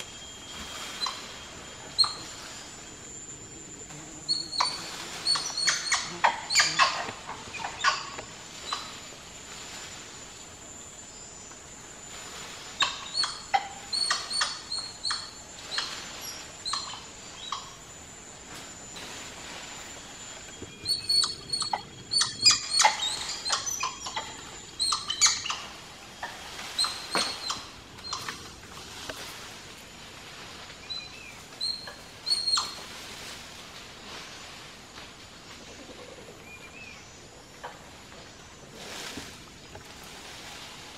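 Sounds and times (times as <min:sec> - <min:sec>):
monkeys squeaking and chirping: 0:00.8 - 0:02.4, 0:04.3 - 0:09.0, 0:12.8 - 0:17.8, 0:20.8 - 0:28.5, 0:31.6 - 0:32.8.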